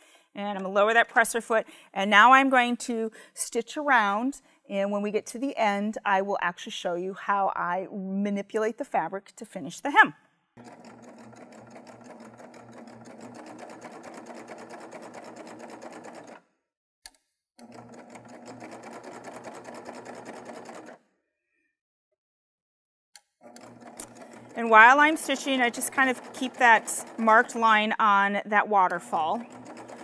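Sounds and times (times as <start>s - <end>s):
serger sewing machine running: 10.6s - 16.4s, 17.6s - 21.0s, 23.4s - 27.8s, 29.0s - 30.0s.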